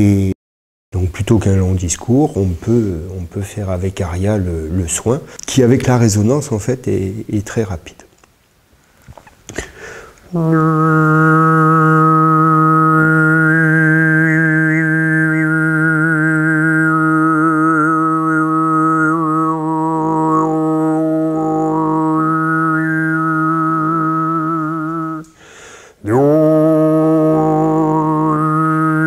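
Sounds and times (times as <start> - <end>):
man breathing: 9.5 - 10.3, 25.3 - 26.0
man overtone singing: 10.3 - 25.3, 26.0 - 29.0.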